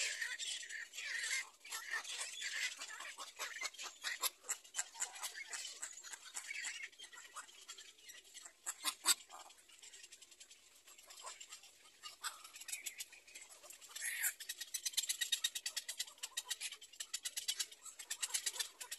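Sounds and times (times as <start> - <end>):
heron chicks ticking calls: 0.1 - 18.9.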